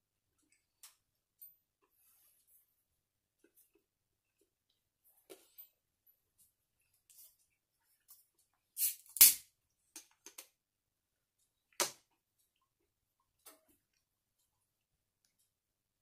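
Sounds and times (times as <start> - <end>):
bottle cap cracking: 8.8 - 9.4.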